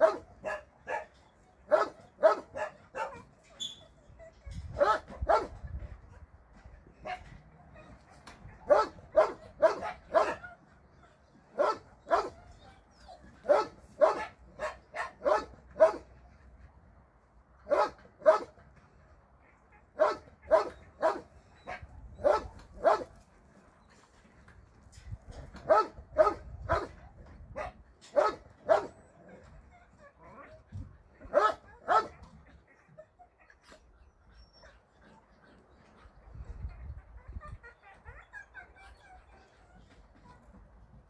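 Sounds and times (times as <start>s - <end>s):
dog barking: 0.0s - 1.1s, 1.7s - 3.2s, 4.8s - 5.6s, 8.7s - 10.4s, 11.6s - 12.4s, 13.5s - 16.1s, 17.7s - 18.5s, 20.0s - 21.3s, 22.2s - 23.1s, 25.6s - 26.9s, 27.6s - 29.0s, 31.3s - 32.2s.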